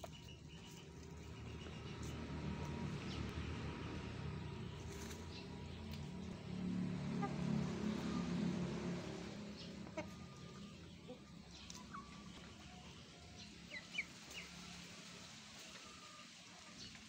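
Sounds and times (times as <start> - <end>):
chickens clucking: 7.0 - 17.0.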